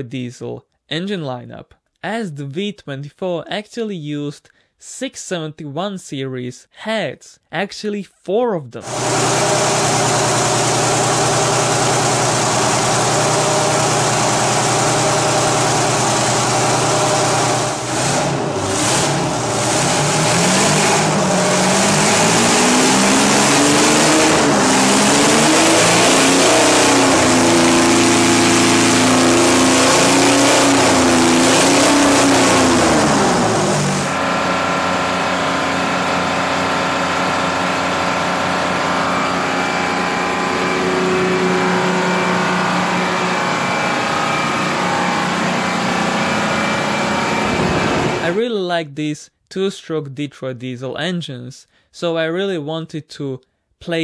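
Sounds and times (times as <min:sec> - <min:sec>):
diesel engine revving: 0:08.8 - 0:48.4.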